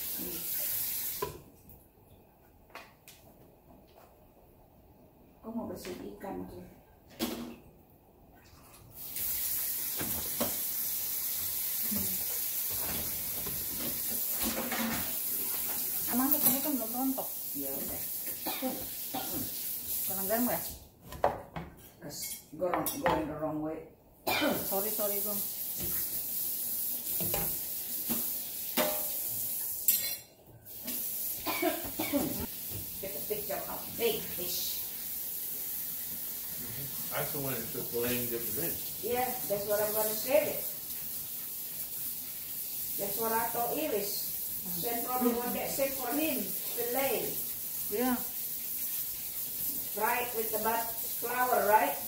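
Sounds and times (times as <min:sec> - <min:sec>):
stew simmering hiss: 0:00.0 - 0:01.4, 0:08.9 - 0:20.9, 0:24.4 - 0:52.0
water rushing from tap: 0:00.0 - 0:01.4, 0:08.9 - 0:20.8, 0:24.5 - 0:30.0, 0:30.7 - 0:52.0.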